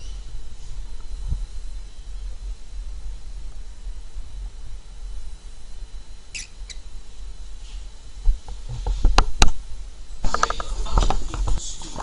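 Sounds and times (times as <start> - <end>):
cockatiel squeaking: 6.3 - 6.9.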